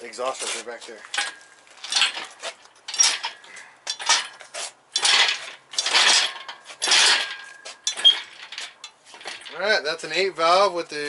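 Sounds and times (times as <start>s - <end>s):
chains clanking and rattling: 1.1s - 9.7s.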